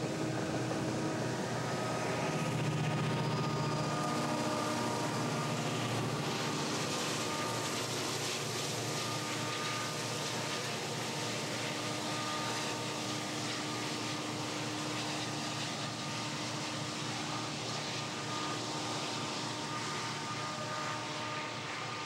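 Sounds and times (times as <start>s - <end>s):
diesel locomotive engine drone: 0.0s - 22.0s.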